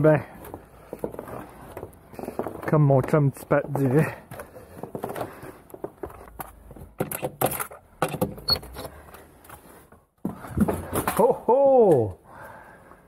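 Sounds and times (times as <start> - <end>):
crutches knocking and clattering: 0.4 - 9.0.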